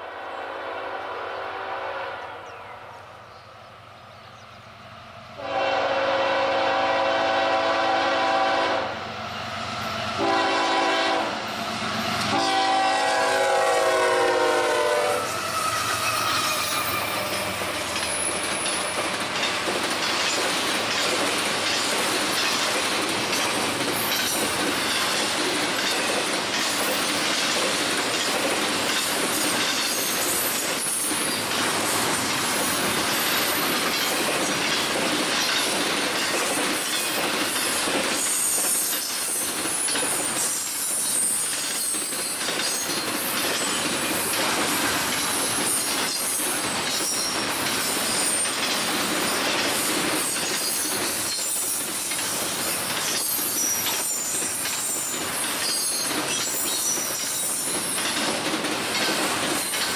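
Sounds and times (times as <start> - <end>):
locomotive air horn blasts: 0.1 - 2.4, 5.4 - 9.0, 10.2 - 11.4, 12.3 - 17.1
train wheels rumbling on rails: 3.0 - 59.9.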